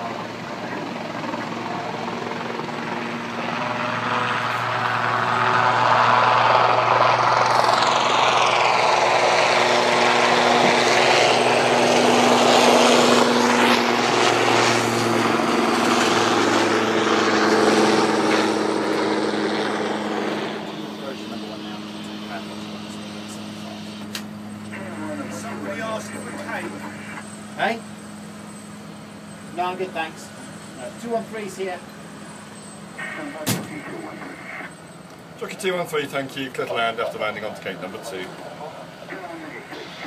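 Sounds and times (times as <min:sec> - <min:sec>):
helicopter turbine and rotor noise: 0:00.0 - 0:40.0.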